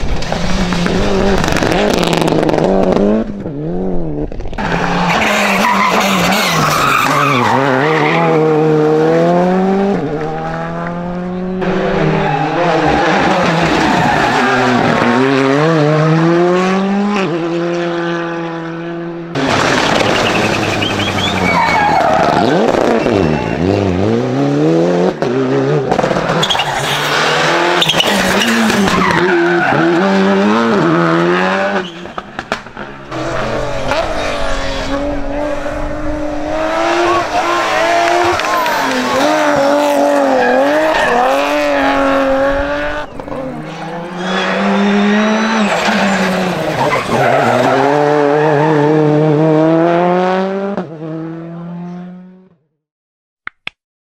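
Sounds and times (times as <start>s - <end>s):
rally car engines revving: 0.0s - 52.6s
tyres skidding: 4.5s - 16.4s, 19.3s - 50.6s.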